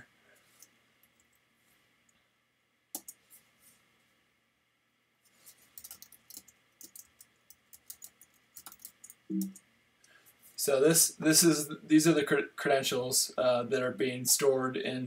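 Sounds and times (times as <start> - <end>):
keyboard typing clicks: 3.0 - 3.2, 5.8 - 9.6.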